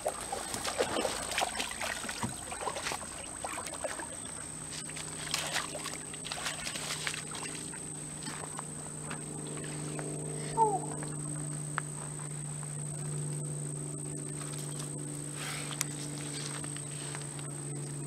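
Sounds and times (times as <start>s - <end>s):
water splashing and sloshing: 0.0s - 8.6s
steady low hum: 0.0s - 18.0s.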